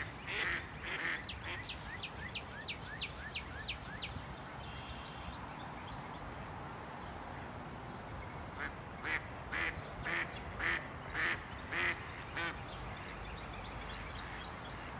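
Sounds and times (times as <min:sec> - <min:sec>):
duck quacking: 0:00.0 - 0:01.6.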